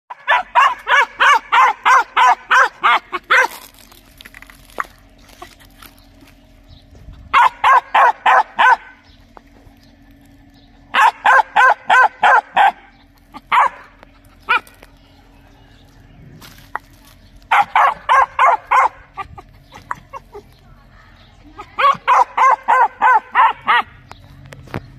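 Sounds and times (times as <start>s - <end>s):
young dog barking: 0.1s - 3.6s, 7.3s - 9.0s, 10.9s - 14.7s, 17.5s - 20.4s, 21.6s - 24.0s.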